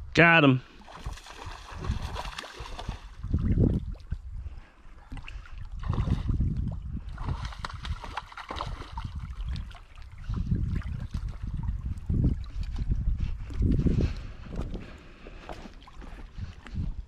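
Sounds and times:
water lapping on rocky shore: 0.7s - 4.3s, 4.9s - 12.8s
wind buffeting microphone: 0.9s - 17.0s.

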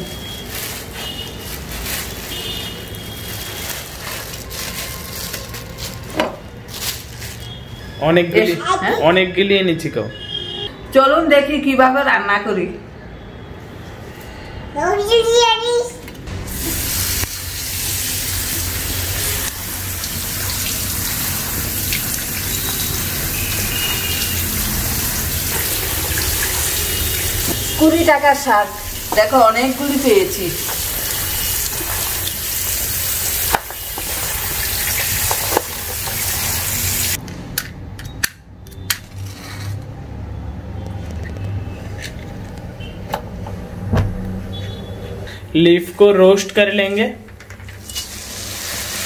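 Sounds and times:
hands turning wet leaves: 0.0s - 7.7s, 28.8s - 37.2s
plastic bag crinkling: 0.0s - 7.9s.

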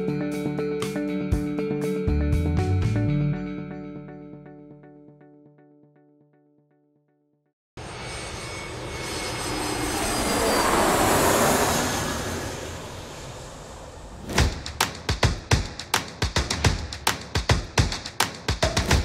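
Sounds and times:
aircraft engine rushing past: 7.8s - 14.4s
percussive music hits: 14.3s - 19.0s.

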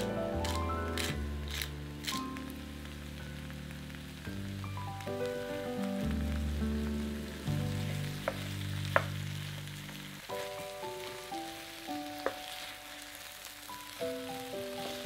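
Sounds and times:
vegetables sizzling in a frying pan: 0.0s - 15.0s
wooden spoon knocking on pan: 8.2s - 9.2s, 12.2s - 12.5s.

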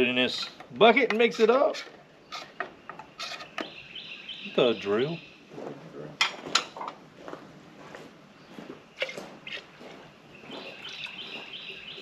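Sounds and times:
high chirping call: 3.6s - 5.4s, 10.4s - 12.0s.

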